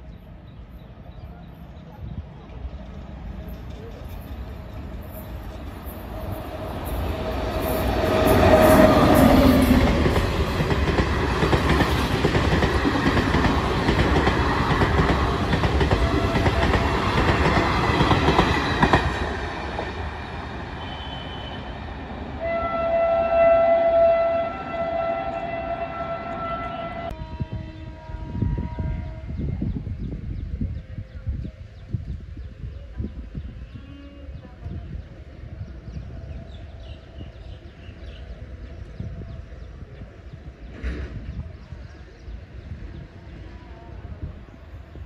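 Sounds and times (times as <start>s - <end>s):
train coaches rumbling over rail joints: 1.5s - 30.1s, 36.5s - 45.0s
train horn: 7.8s - 10.3s, 15.9s - 17.3s, 20.7s - 29.7s, 33.6s - 34.7s.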